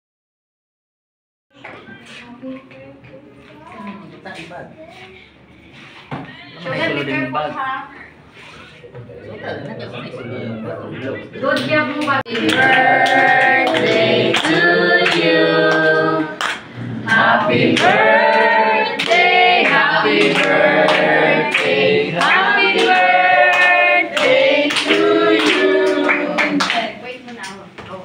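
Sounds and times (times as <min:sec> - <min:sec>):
hand clapping: 0:12.0 - 0:18.4, 0:19.0 - 0:27.6
people singing together: 0:12.2 - 0:27.0.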